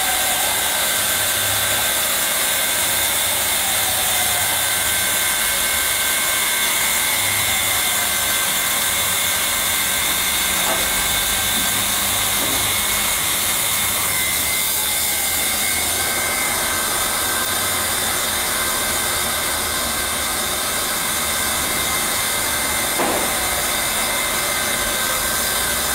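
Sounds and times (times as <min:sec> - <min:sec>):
hot-air gun blower hissing: 0:00.0 - 0:25.9
short knock: 0:23.0 - 0:23.4.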